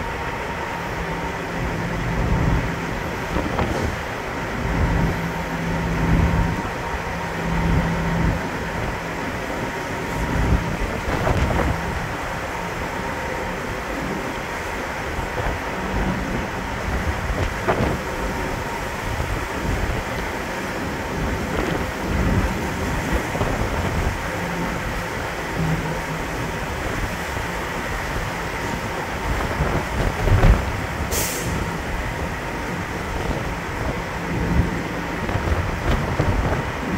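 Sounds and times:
ferry engines droning: 0.0s - 36.9s
ship machinery rumbling: 0.0s - 36.9s
steady low hum: 0.0s - 36.9s
wind buffeting microphone: 0.0s - 36.9s
wind rushing: 5.9s - 13.1s
brief high hiss: 31.1s - 31.6s.

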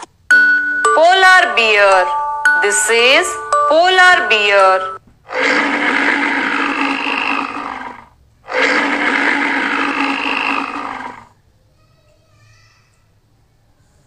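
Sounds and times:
polar bear roaring: 5.3s - 11.4s.

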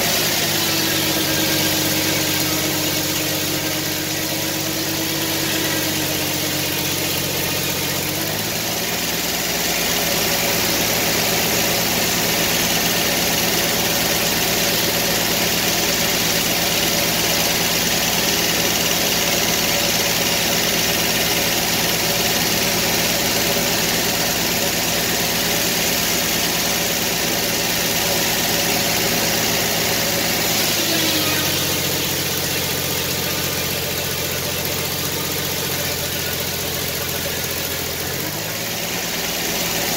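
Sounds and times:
sawmill engine: 0.0s - 39.9s
circular blade cutting log: 27.9s - 36.7s.

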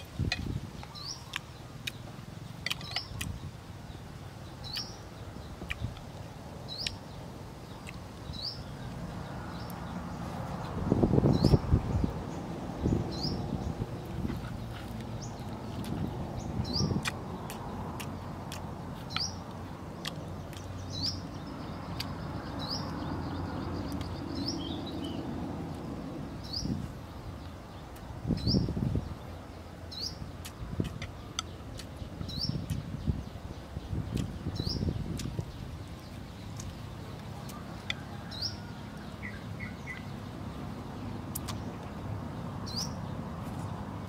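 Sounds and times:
man chewing: 0.0s - 3.4s, 5.5s - 7.0s, 7.8s - 8.0s, 13.8s - 21.3s, 21.9s - 22.2s, 30.3s - 33.0s, 33.7s - 38.0s, 41.3s - 41.9s
bird chirping: 0.0s - 43.9s.

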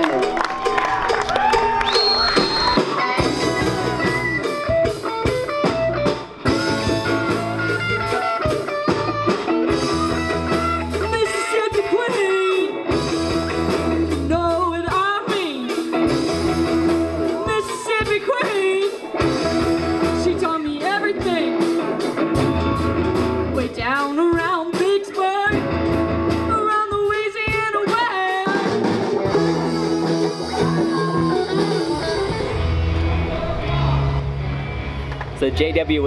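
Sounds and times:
bass line: 0.0s - 15.1s, 15.9s - 24.0s, 25.5s - 26.7s, 28.6s - 36.0s
guitar: 0.0s - 36.0s
live rock band: 0.0s - 36.0s
person singing: 26.6s - 34.2s.

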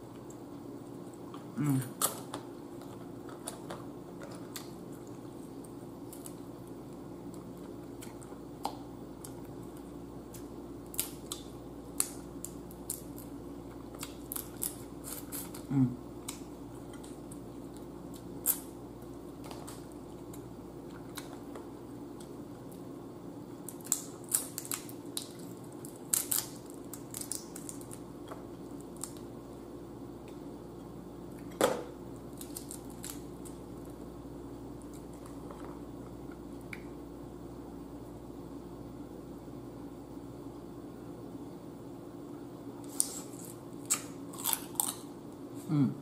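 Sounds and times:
steady low hum: 0.0s - 46.0s
crab shell cracking: 23.6s - 28.0s.

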